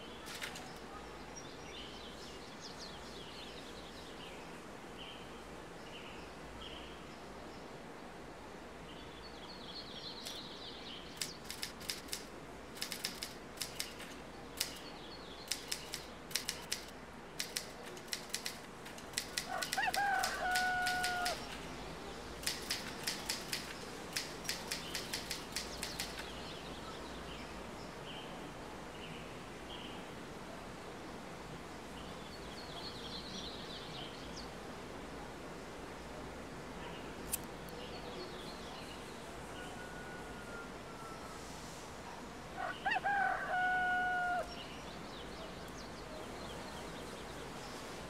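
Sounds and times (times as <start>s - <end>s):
typewriter keys clicking: 11.2s - 14.9s, 15.5s - 21.6s, 22.4s - 26.3s.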